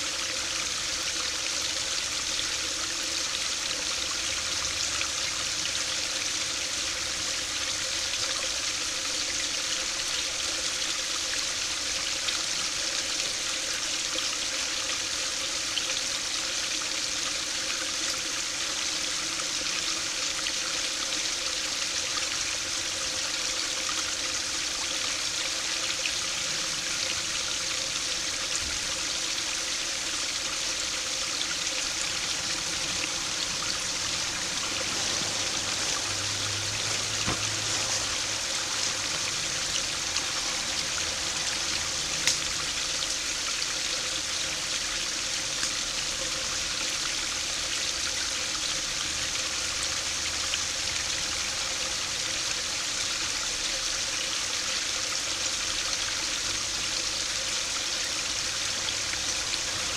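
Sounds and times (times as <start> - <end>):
water splashing into pool: 31.8 - 43.2.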